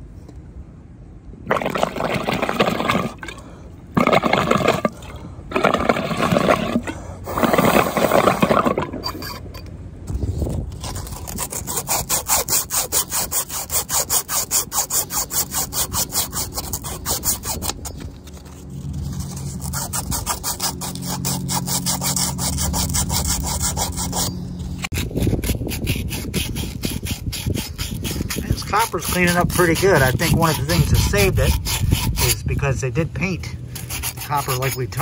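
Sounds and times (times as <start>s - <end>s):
sand cloth scrubbing copper pipe: 10.4s - 35.0s.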